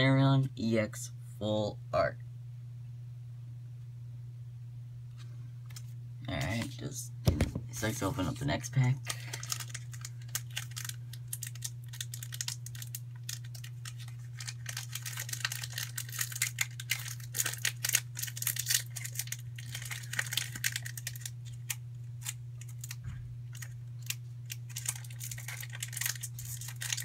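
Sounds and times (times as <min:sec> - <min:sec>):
steady low hum: 0:00.0 - 0:27.0
foil wrapper crinkling: 0:07.7 - 0:27.0.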